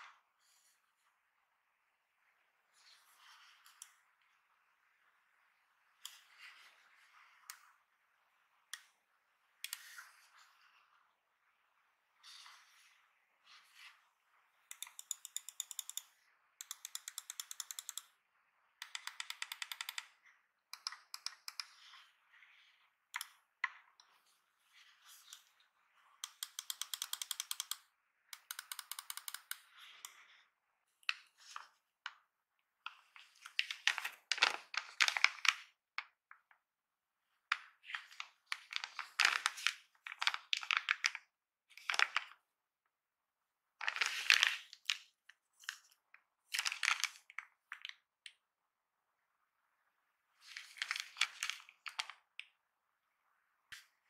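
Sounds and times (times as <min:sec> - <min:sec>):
mouse buttons clicking rapidly: 0:14.7 - 0:18.2, 0:18.8 - 0:21.9, 0:26.2 - 0:30.1.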